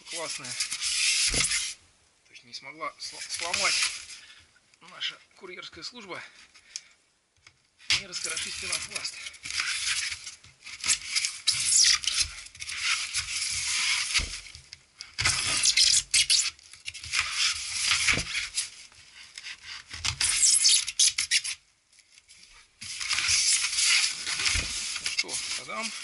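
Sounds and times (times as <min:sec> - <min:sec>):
hands scraping foam box: 0:00.0 - 0:01.8, 0:03.1 - 0:04.2, 0:07.8 - 0:21.6, 0:22.8 - 0:26.0
packing tape pulled: 0:08.0 - 0:18.8, 0:19.4 - 0:26.0.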